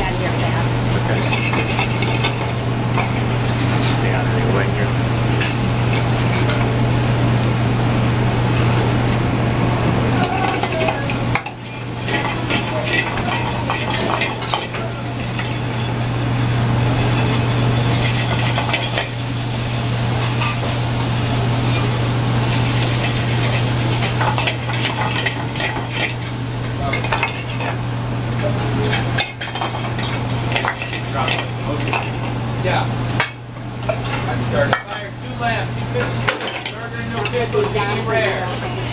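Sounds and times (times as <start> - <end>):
food sizzling: 0.0 - 38.9
steady low hum: 0.0 - 38.9
metal utensil scraping pans: 10.3 - 15.9, 22.9 - 26.2.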